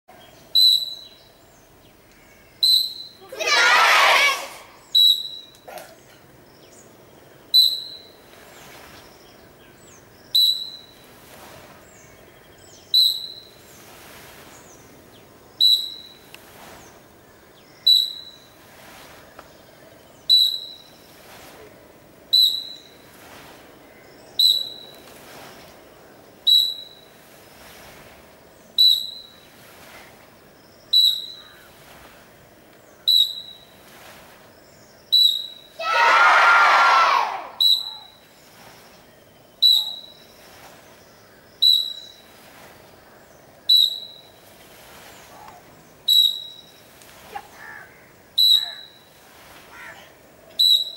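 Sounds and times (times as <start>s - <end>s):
short high whistle blasts: 0.6s - 1.1s, 2.6s - 3.2s, 17.9s - 18.3s, 24.4s - 24.9s, 37.5s - 38.2s, 39.6s - 40.1s, 46.1s - 46.6s, 48.4s - 49.0s, 50.6s - 50.9s.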